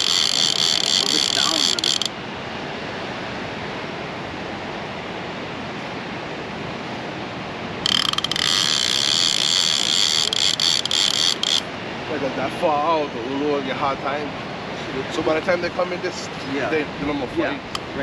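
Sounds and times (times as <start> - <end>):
fishing reel ratchet clicking: 0.0 - 2.1, 7.9 - 11.6.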